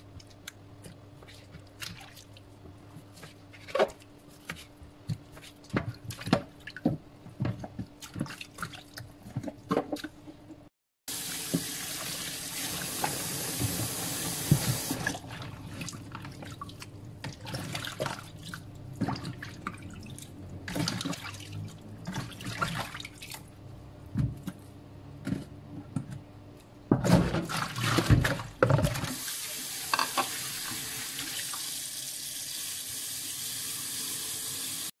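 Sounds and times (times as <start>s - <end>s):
tap water running into bowl: 11.1s - 15.2s.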